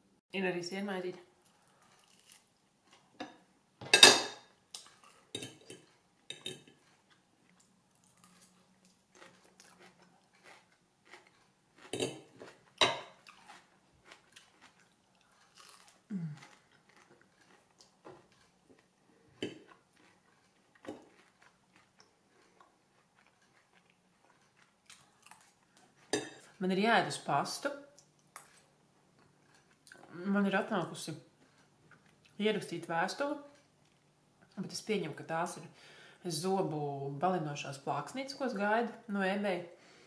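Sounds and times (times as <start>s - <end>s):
person chewing and crunching: 1.4s - 3.2s, 4.6s - 26.6s, 27.9s - 30.3s, 31.3s - 32.4s.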